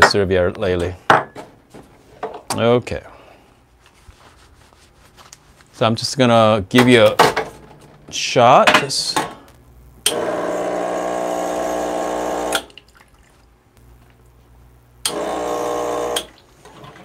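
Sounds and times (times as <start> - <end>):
espresso machine pump buzzing: 10.0 - 12.7, 15.0 - 16.4.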